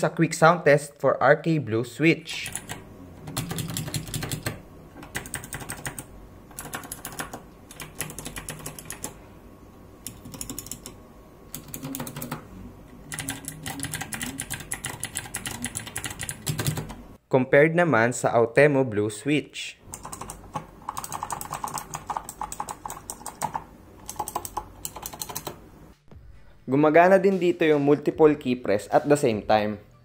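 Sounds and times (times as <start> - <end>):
mechanical keyboard typing: 2.4 - 9.2, 10.0 - 12.4, 13.0 - 17.0, 19.9 - 25.6.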